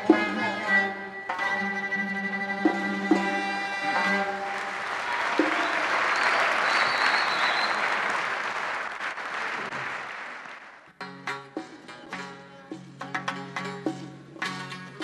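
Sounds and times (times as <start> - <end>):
audience applauding: 4.0 - 10.9.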